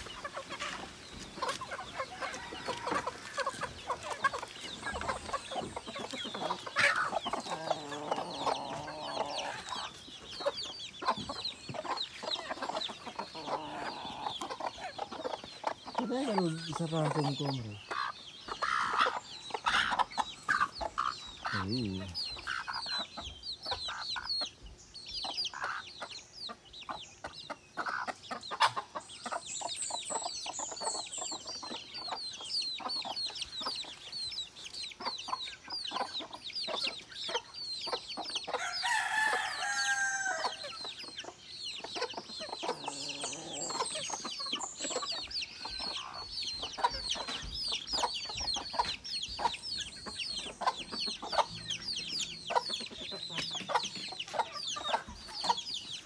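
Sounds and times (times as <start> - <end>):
chicks peeping: 0.0 - 56.0
hens clucking: 0.0 - 56.0
rooster crowing: 38.6 - 40.6.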